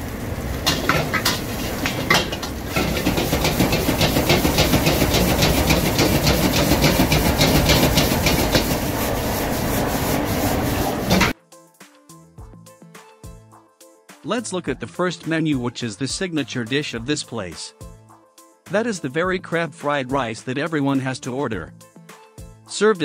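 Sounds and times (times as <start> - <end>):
gas burner rushing: 0.0 - 11.4
metal spatula scraping wok: 0.6 - 11.4.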